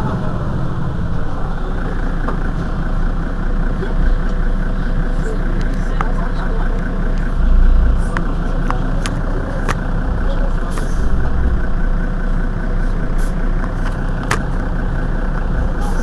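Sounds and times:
bus engine idling: 0.0 - 16.0.

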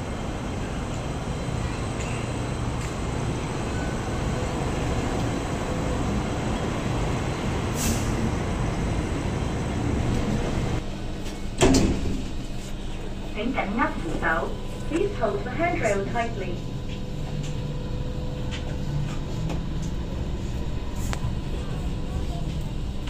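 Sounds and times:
steady hum: 9.4 - 23.0.

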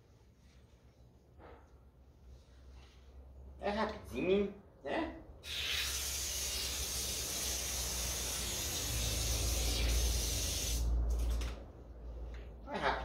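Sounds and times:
hose water spraying: 5.4 - 10.9.

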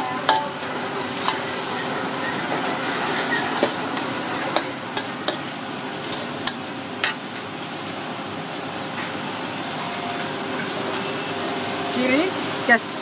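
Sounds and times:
metal spatula scraping wok: 0.0 - 7.4
meat sizzling in oil: 0.0 - 13.0.

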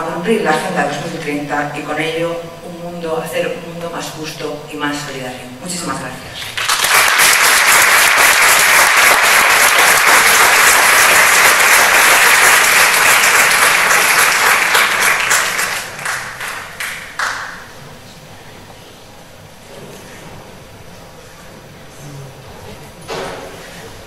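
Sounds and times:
audience applauding: 6.5 - 17.7.

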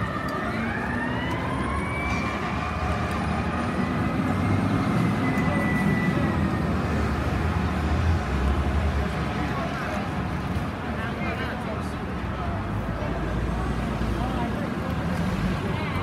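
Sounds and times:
fire truck siren wailing: 0.0 - 7.7
low rumble of traffic: 0.0 - 16.0.

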